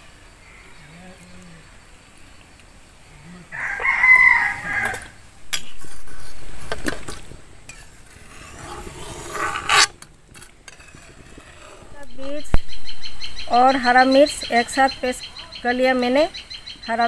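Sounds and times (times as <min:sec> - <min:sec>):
rooster crowing: 0:03.5 - 0:05.2.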